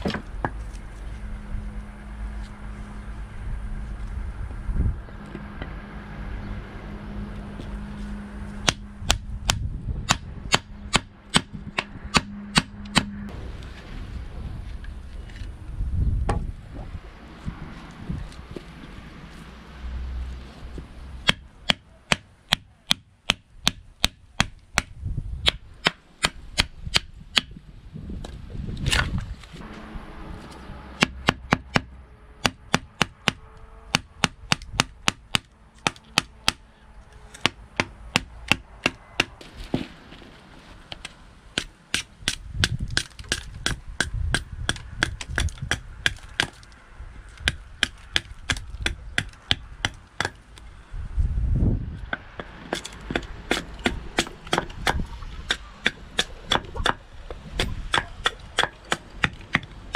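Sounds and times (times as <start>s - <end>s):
knife chopping wood: 52.2s - 57.0s, 57.6s - 59.7s.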